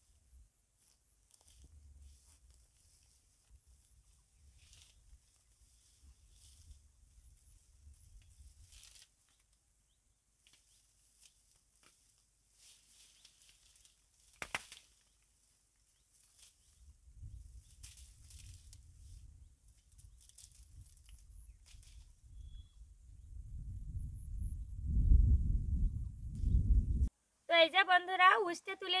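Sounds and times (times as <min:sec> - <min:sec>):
rustling and tearing vines: 0:04.5 - 0:05.5, 0:08.3 - 0:09.5, 0:10.4 - 0:15.4, 0:17.6 - 0:19.0, 0:19.8 - 0:22.1
stem snapping: 0:13.2 - 0:15.1.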